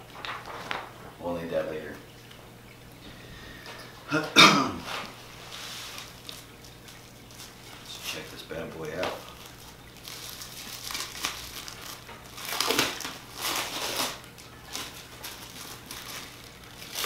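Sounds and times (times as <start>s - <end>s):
plastic wrapping crinkling: 0.0s - 1.3s, 4.9s - 17.0s.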